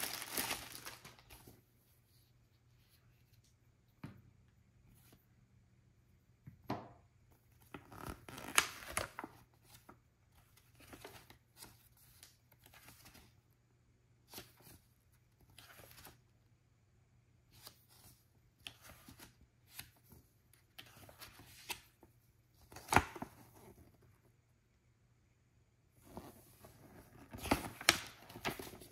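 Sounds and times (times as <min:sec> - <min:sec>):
paper pages rustling and flicking: 0:00.0 - 0:01.8, 0:07.6 - 0:13.4, 0:26.1 - 0:28.9.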